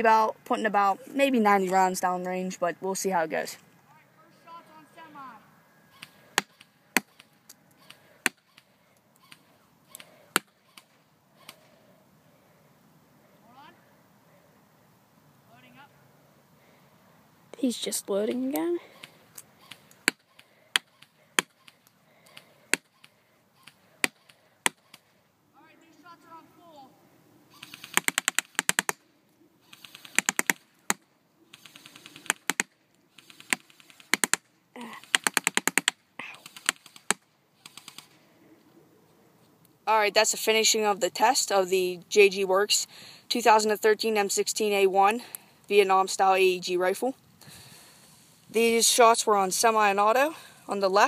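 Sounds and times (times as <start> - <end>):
airsoft rifle firing bursts: 27.6 - 29.0, 29.6 - 30.6
airsoft rifle shots: 27.6 - 29.0, 29.6 - 34.5, 35.1 - 38.1.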